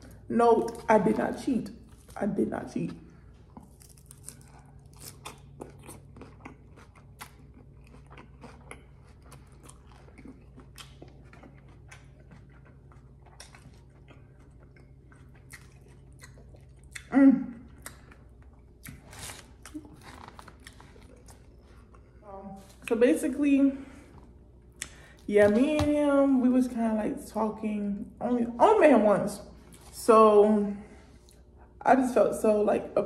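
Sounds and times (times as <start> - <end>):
chewing crunchy salad: 0.0 - 23.0.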